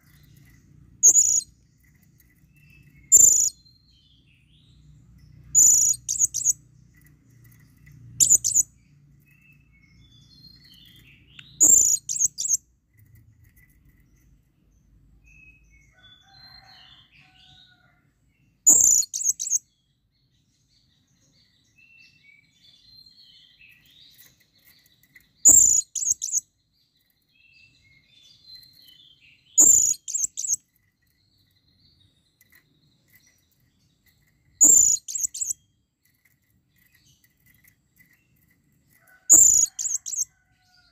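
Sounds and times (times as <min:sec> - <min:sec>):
soft parrot chirps: 0:01.0 - 0:01.5, 0:03.1 - 0:03.6, 0:05.5 - 0:06.6, 0:08.2 - 0:08.7, 0:11.1 - 0:12.6, 0:18.7 - 0:19.6, 0:25.4 - 0:26.4, 0:29.6 - 0:30.6, 0:34.6 - 0:35.6.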